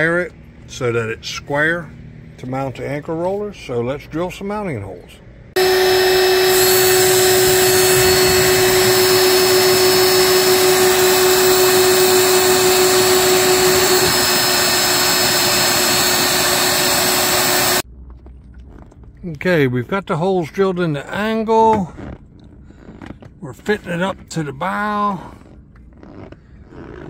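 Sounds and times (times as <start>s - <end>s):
power drill boring through metal: 5.6s - 17.8s.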